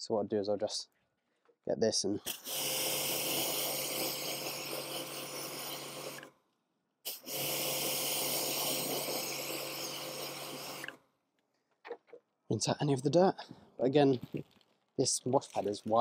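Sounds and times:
pressure washer spraying water: 2.3 - 6.3, 7.1 - 11.0.

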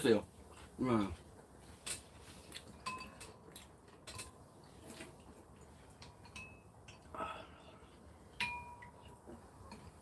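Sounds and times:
metal spoons clinking on ceramic bowls: 2.8 - 3.4, 6.0 - 7.0, 8.4 - 9.1.

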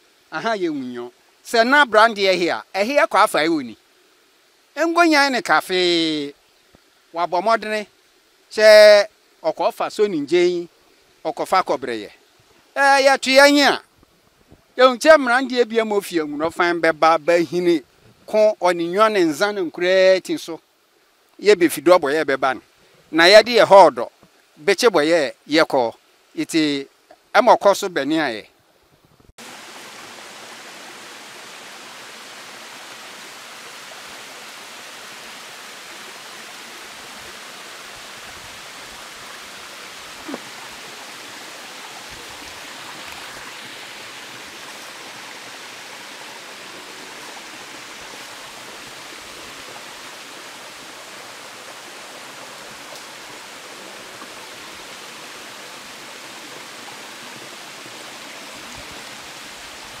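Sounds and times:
waterfall rushing: 0.0 - 6.4, 29.4 - 60.0.

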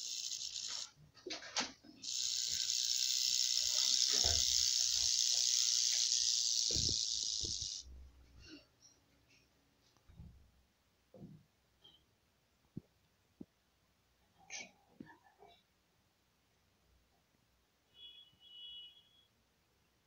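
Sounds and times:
rattlesnake tail rattling: 0.0 - 7.9.

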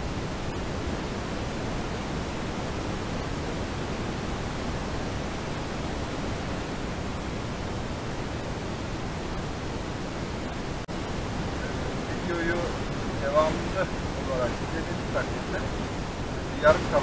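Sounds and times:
car cabin road noise: 11.5 - 15.8.

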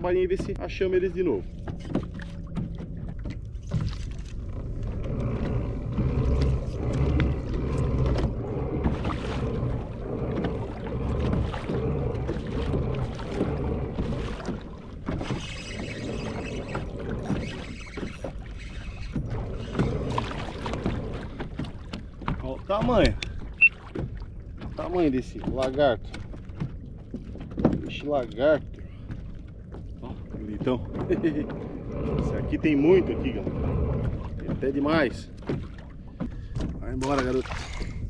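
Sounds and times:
fluctuating low rumble: 0.0 - 17.7, 19.2 - 23.3, 29.9 - 35.4.

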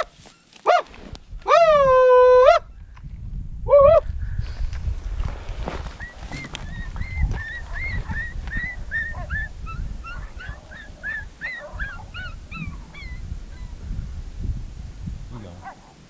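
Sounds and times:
wind rumble on microphone: 1.0 - 16.0
coyote yipping: 5.8 - 13.9.

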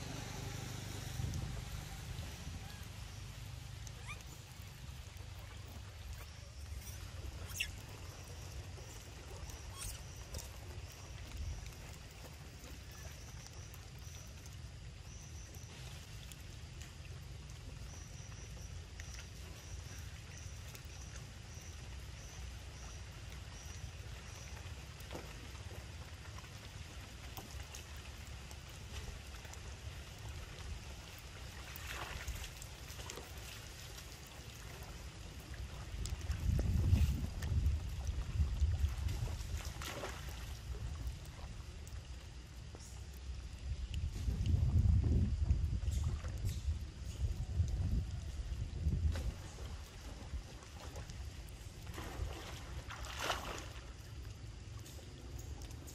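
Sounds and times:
wind rumble on microphone: 0.0 - 4.2, 35.1 - 53.6
steady low rumble: 0.0 - 7.4
light rain pattering on water: 0.0 - 55.9
faint drip ticks: 3.2 - 39.2, 40.4 - 49.0, 53.9 - 55.9.

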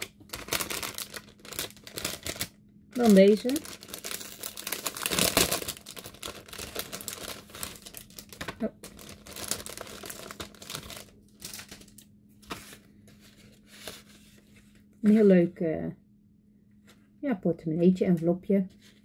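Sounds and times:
plastic wrapping crinkling: 0.0 - 14.8.

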